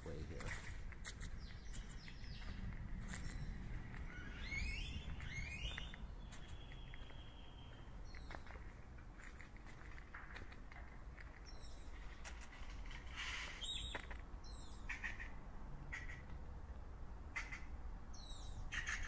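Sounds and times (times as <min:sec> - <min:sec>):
faint footsteps on a path: 0:00.0 - 0:14.8
road traffic rumble: 0:00.0 - 0:19.0
bird calling: 0:03.2 - 0:08.5, 0:13.1 - 0:16.3, 0:17.4 - 0:19.0.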